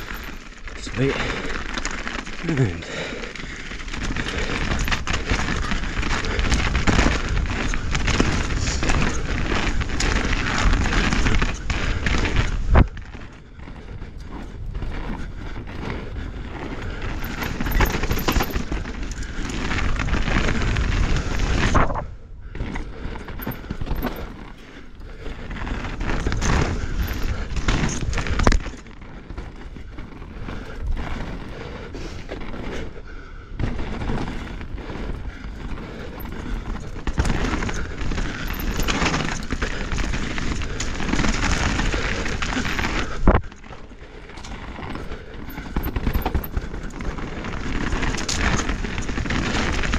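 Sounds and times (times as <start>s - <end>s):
bike tyres rushing on dirt: 0.0s - 49.9s.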